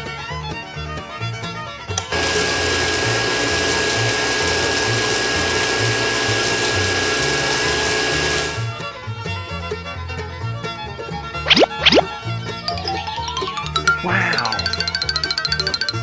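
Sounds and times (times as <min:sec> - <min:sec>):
small water pump whining: 0:02.0 - 0:08.8.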